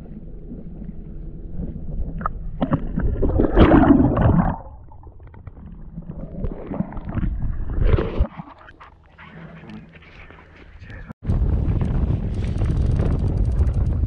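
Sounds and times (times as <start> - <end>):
muffled water sloshing underwater: 0.0 - 11.0.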